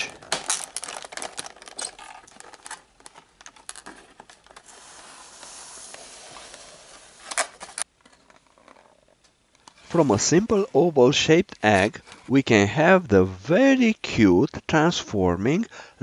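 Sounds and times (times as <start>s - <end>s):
plastic packaging crinkling: 0.0s - 5.3s.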